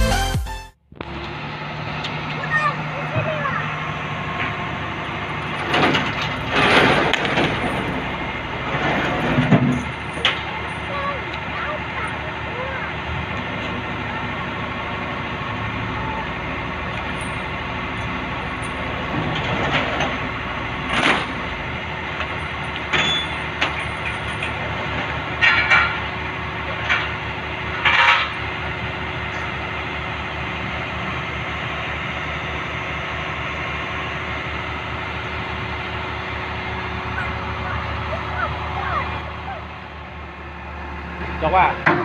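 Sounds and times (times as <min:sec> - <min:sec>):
diesel engine idling: 0:00.0 - 0:42.0
metal clanks and knocks: 0:05.3 - 0:12.2, 0:16.9 - 0:28.6, 0:41.8 - 0:42.0.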